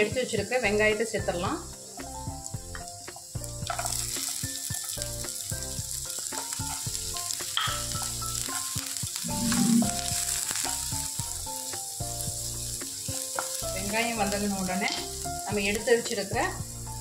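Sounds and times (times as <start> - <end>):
onion sizzling in butter: 0.0 - 17.0
spoon stirring in a pan: 12.9 - 13.7.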